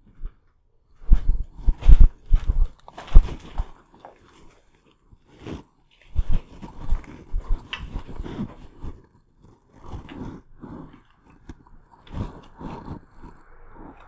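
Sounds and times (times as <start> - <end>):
footsteps crunching on debris: 1.0 - 9.1.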